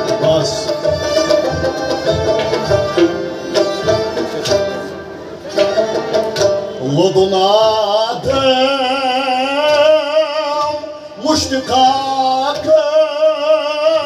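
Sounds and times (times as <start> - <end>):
sharp percussion strokes: 0.0 - 6.9
accompanying instruments: 0.0 - 14.0
man singing with vibrato: 6.8 - 14.0.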